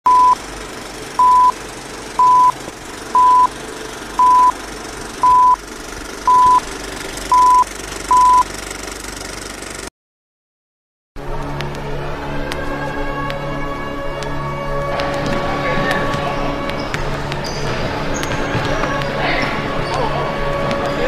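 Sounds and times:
short high beeps: 0.1s - 0.4s, 1.2s - 1.6s, 2.2s - 2.6s, 3.2s - 3.5s, 4.2s - 4.6s, 5.2s - 5.6s, 6.3s - 6.6s, 7.3s - 8.5s.

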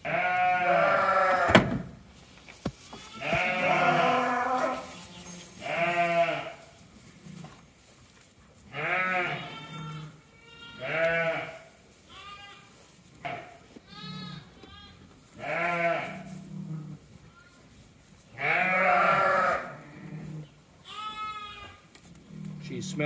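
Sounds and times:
sheep bleating: 0.0s - 1.5s, 2.9s - 6.6s, 8.7s - 16.4s, 18.4s - 21.8s.

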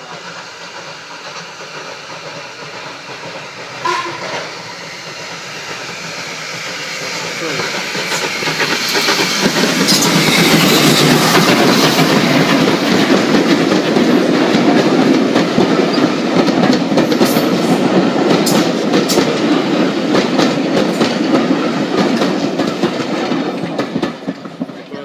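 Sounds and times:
train wheels rumbling on rail: 0.0s - 25.0s
wheels clicking over rail joints: 6.6s - 25.0s.

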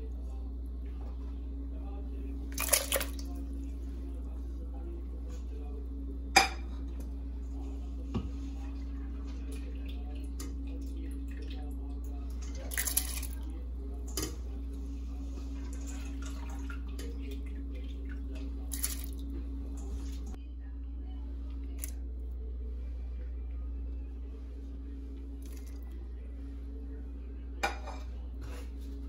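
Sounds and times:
steady low hum: 0.0s - 29.0s
lentils splashing into water: 2.4s - 3.4s, 12.4s - 13.5s, 18.0s - 19.2s, 25.4s - 25.8s.

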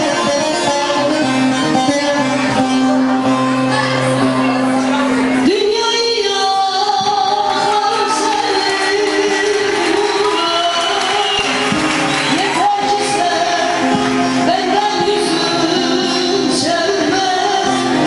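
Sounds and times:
lutes strummed and plucked: 0.0s - 18.0s.

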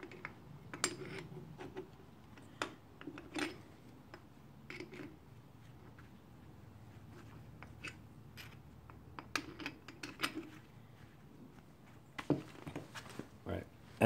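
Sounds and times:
metal parts clicking and scraping: 0.0s - 5.2s, 7.1s - 10.7s.

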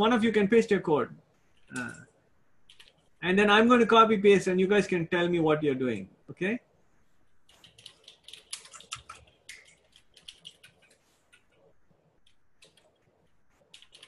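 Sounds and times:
computer keyboard typing: 2.6s - 3.2s, 7.5s - 14.0s.

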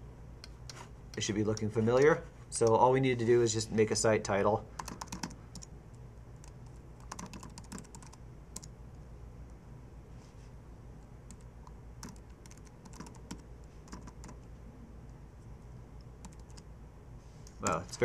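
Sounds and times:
low steady hum: 0.0s - 18.0s
keyboard typing: 4.8s - 5.7s, 6.4s - 8.7s, 11.3s - 14.5s, 16.2s - 16.7s.

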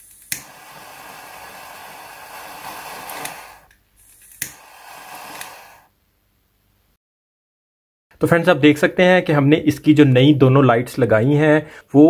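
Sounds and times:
jet lighter flame hissing: 0.0s - 5.9s
lighter ignition click: 0.0s - 5.9s.

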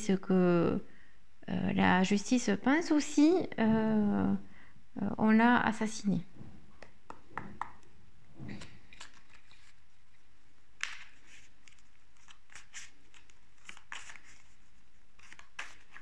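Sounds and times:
cards being shuffled: 8.6s - 10.2s, 10.8s - 16.0s.

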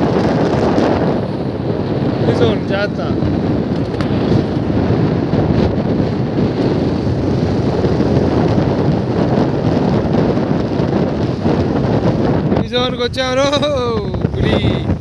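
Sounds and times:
vehicle road noise: 0.0s - 15.0s
wind buffeting microphone: 0.0s - 15.0s.

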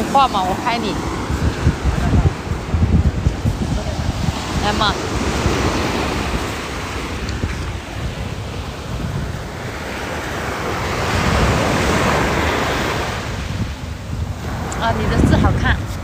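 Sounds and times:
sea surf washing up beach: 0.0s - 16.0s
wind buffeting microphone: 0.0s - 16.0s.

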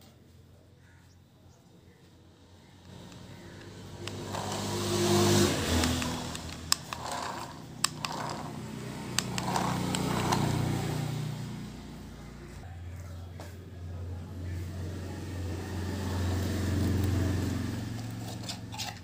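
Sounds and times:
toy car electric motor running: 2.9s - 11.6s, 16.4s - 19.0s.

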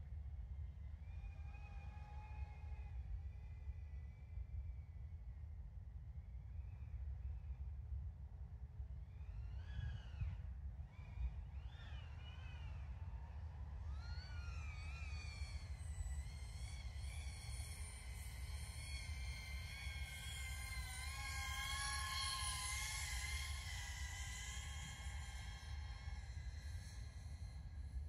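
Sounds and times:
drone propellers whining: 12.8s - 28.0s.

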